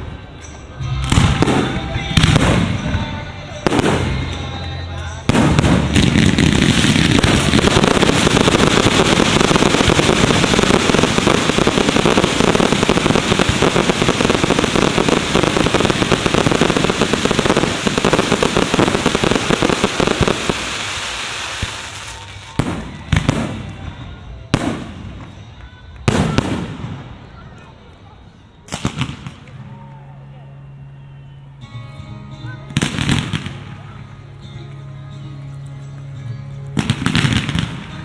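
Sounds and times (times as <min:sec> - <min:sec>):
fireworks crackling and booming: 0:00.0 - 0:29.8, 0:32.6 - 0:34.3, 0:36.0 - 0:38.0
loud firework bangs: 0:05.3 - 0:23.9.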